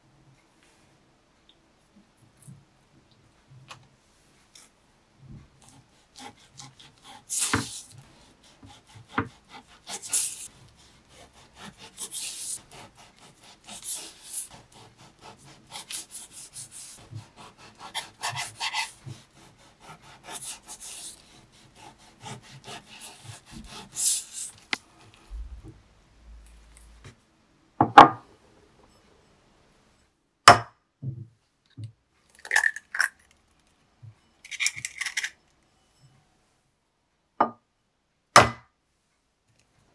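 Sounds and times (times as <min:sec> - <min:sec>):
knife sawing through bacon: 0:05.6 - 0:25.2
eggshell crackling: 0:32.3 - 0:33.6.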